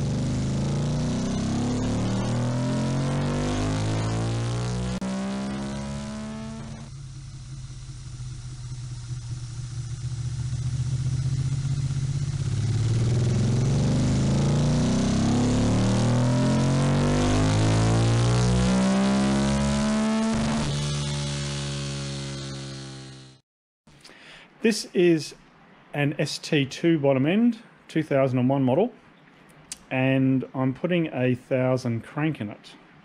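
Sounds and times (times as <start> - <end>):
motorcycle engine revving: 0.0 - 23.4.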